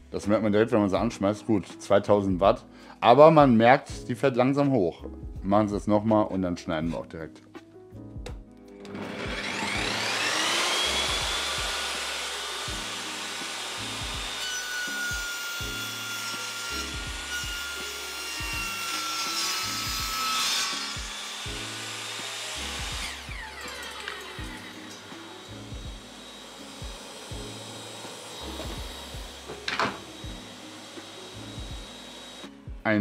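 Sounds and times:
table saw whining: 0:08.7 - 0:32.7
saw cutting through plywood: 0:08.8 - 0:32.6
saw motor winding down: 0:08.8 - 0:32.6.

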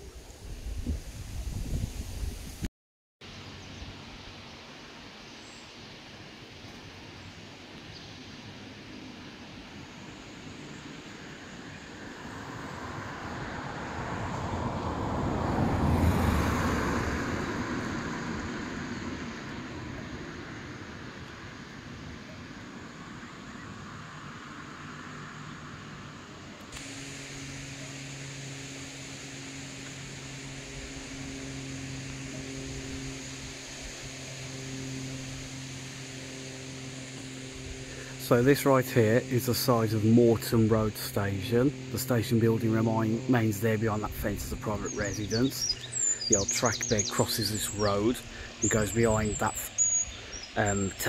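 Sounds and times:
steady low hum: 0:03.3 - 0:51.0
car passing: 0:10.1 - 0:51.0
tyre hiss: 0:26.7 - 0:42.0, 0:43.8 - 0:51.0.

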